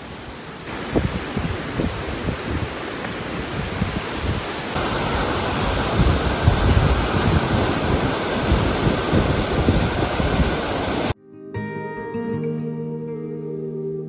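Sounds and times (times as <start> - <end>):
wind buffeting microphone: 0.6 - 11.2.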